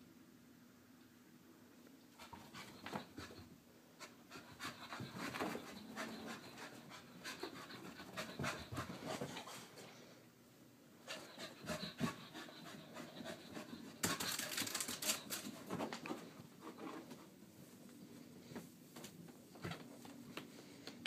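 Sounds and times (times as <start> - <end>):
dog panting: 2.2 - 9.7, 11.0 - 15.8.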